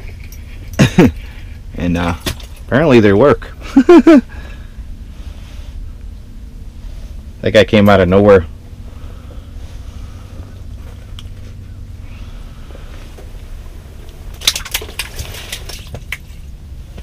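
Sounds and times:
handling clicks and rustles: 0:00.0 - 0:02.8, 0:10.5 - 0:11.7, 0:12.7 - 0:17.0
low rumble: 0:00.0 - 0:17.0.

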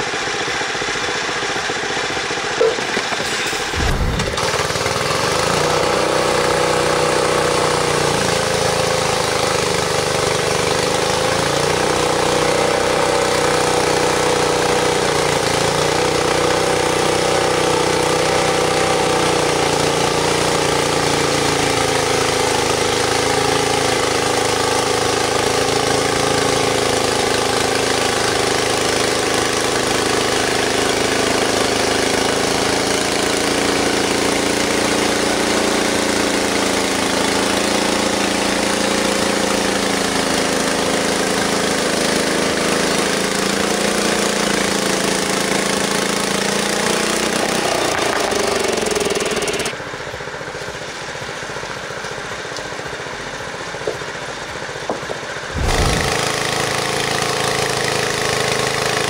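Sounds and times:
sawmill engine running under load: 0:00.0 - 0:59.0
band blade hissing through log: 0:55.5 - 0:56.6.

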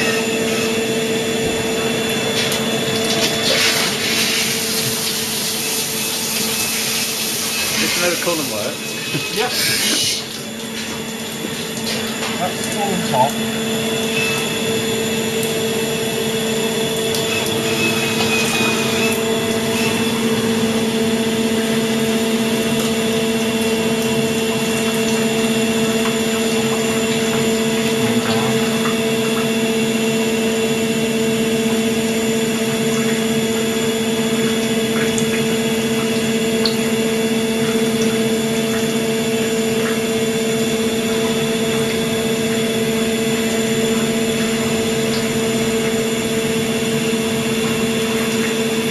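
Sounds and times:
coolant pouring: 0:00.0 - 0:48.9
machine hum: 0:00.0 - 0:48.9.

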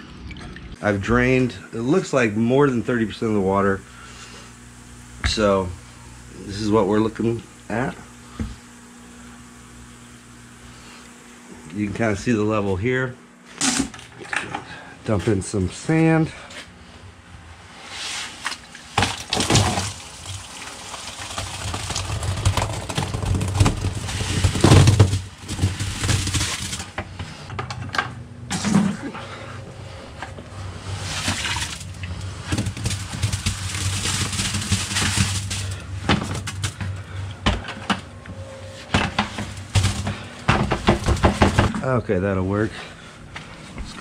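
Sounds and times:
plastic buckets knocking together: 0:39.0 - 0:41.8.

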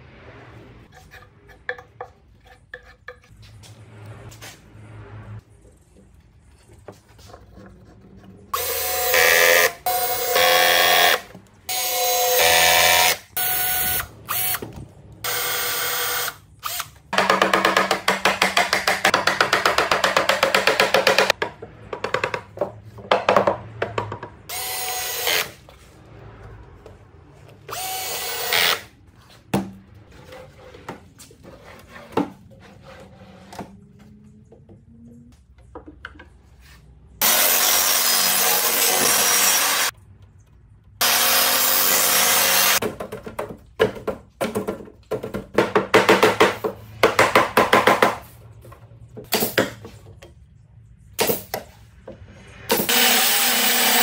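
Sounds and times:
sharp wooden knocks: 0:42.8 - 0:48.2.

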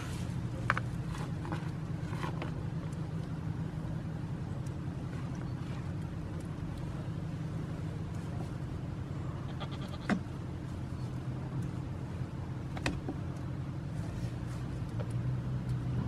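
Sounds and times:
steady low rumble: 0:00.0 - 0:16.0
goats bleating: 0:09.3 - 0:10.2.

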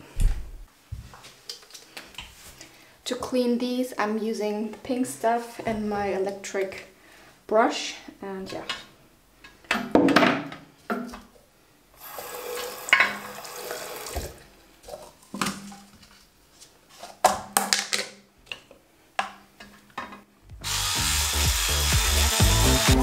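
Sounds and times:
water running from tap: 0:12.0 - 0:14.4
items clattering in sink: 0:12.9 - 0:13.3.

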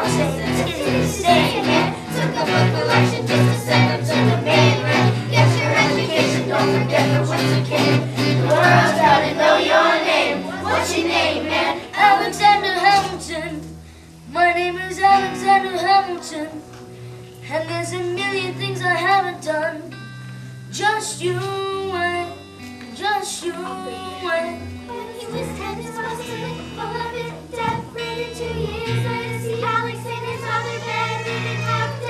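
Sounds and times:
children rap-singing: 0:00.0 - 0:13.6, 0:23.2 - 0:32.0
acoustic guitar: 0:00.0 - 0:32.0.

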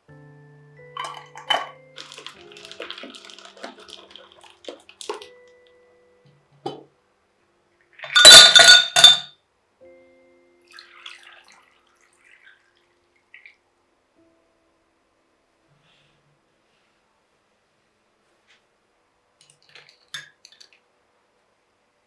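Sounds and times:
glass jar clinks: 0:00.9 - 0:02.8, 0:08.0 - 0:09.3
ice cubes clinking in glass: 0:01.0 - 0:05.3, 0:08.0 - 0:09.3
liquid poured over ice: 0:01.0 - 0:05.3.

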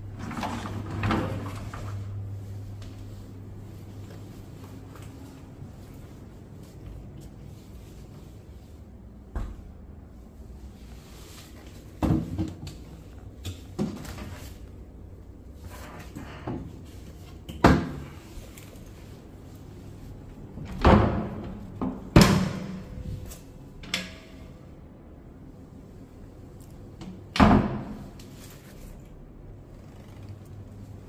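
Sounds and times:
wooden doors opening and shutting: 0:00.0 - 0:02.2, 0:20.5 - 0:24.4.

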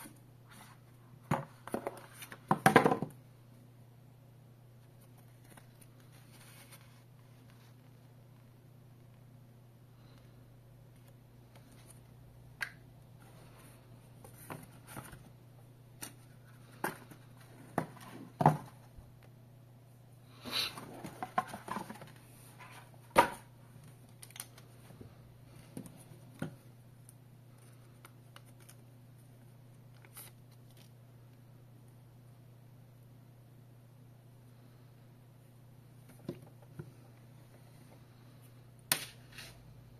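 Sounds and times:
paper and cardboard rustling: 0:20.7 - 0:23.4.

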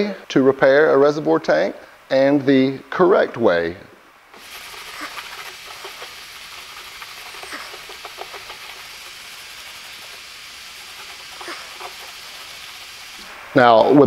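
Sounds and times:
steady hiss: 0:00.0 - 0:14.0
paper towel rubbing plastic: 0:04.4 - 0:14.0.

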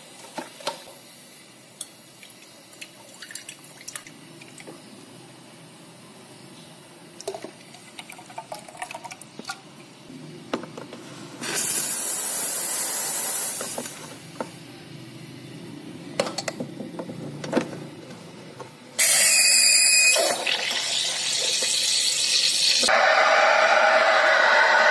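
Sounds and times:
steam wand hissing: 0:21.0 - 0:24.9.

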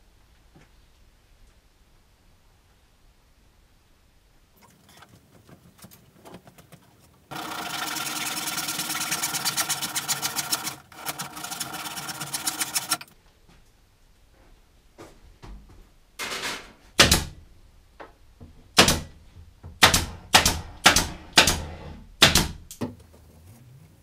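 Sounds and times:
hand saw sawing wood: 0:07.3 - 0:13.0, 0:20.3 - 0:22.4.

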